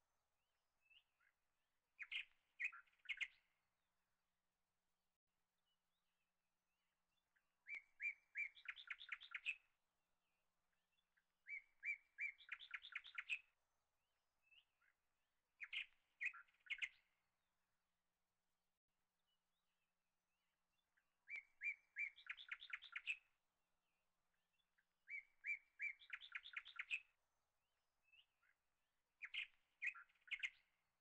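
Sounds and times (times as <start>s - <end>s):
small bird singing: 0.8s - 1.4s, 2.0s - 3.6s, 7.1s - 9.8s, 10.7s - 13.6s, 14.4s - 15.0s, 15.6s - 17.2s, 20.7s - 27.2s, 28.0s - 31.0s.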